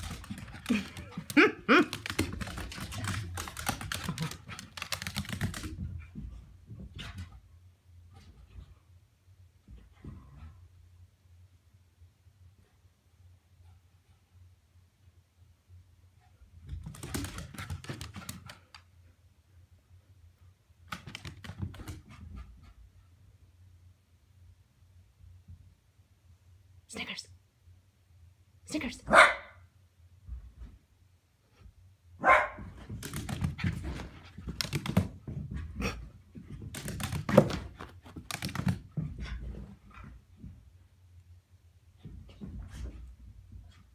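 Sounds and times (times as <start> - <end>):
dog claws clicking on wood floor: 0.0 - 6.0, 16.8 - 18.8, 32.8 - 35.4, 36.5 - 39.2
dog barking: 29.1 - 29.6, 32.2 - 32.7.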